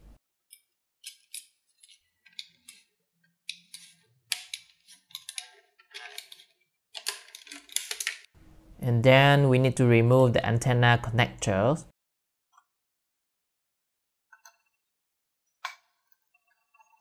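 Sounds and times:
knife blade scraping plastic: 1.0s - 8.3s.

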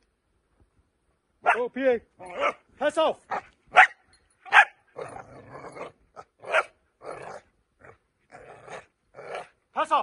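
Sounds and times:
puppy barking: 2.3s - 2.6s, 3.3s - 4.8s, 6.4s - 7.4s
puppy growling: 5.0s - 9.6s.

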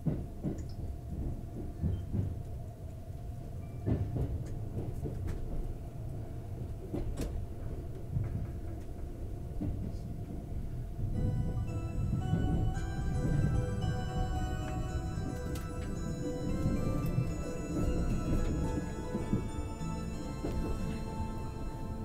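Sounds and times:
train cabin rumble: 0.0s - 22.0s.

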